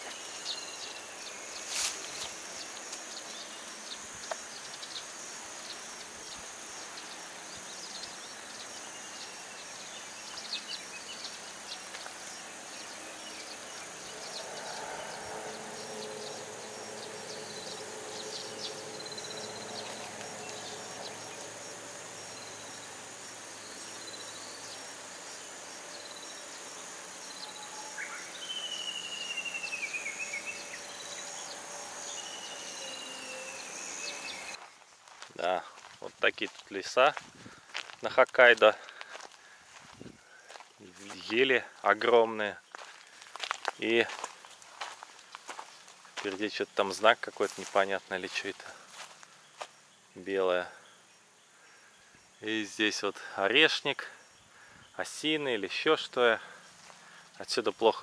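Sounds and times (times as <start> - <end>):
descending bird call: 0.0 - 25.0, 27.3 - 34.6
insects droning: 0.0 - 58.0.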